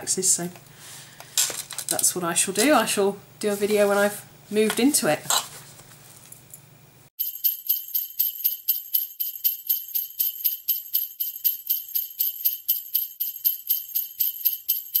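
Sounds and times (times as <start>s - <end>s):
sleigh bells jingling: 7.2s - 15.0s.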